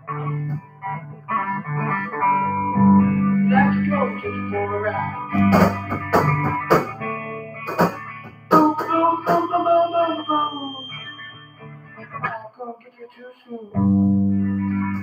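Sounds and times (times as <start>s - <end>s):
electric guitar notes: 0.0s - 12.4s, 13.7s - 15.0s
drum and cymbal hits: 5.4s - 7.0s, 7.7s - 9.5s.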